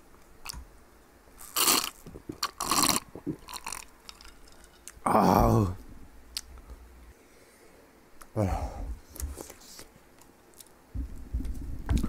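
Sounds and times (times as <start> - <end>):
person gulping: 1.4 - 5.8
person exhaling: 8.4 - 9.0.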